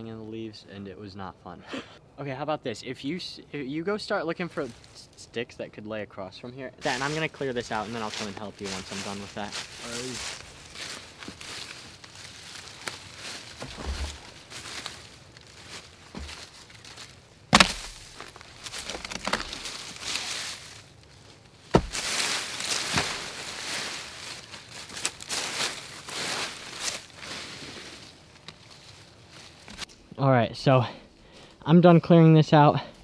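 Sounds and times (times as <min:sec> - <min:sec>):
dry leaves rustling and crunching: 0:06.8 - 0:29.9
sharp knocks: 0:17.5 - 0:18.0, 0:21.7 - 0:22.1.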